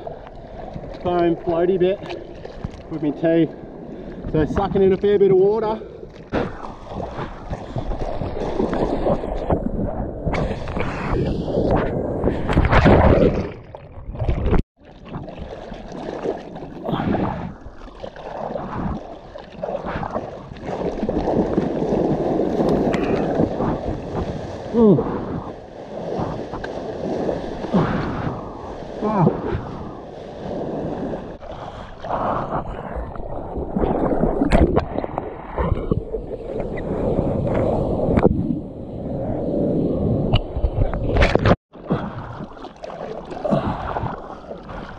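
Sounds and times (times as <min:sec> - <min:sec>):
surf rushing and splashing: 0:14.3 - 0:35.7.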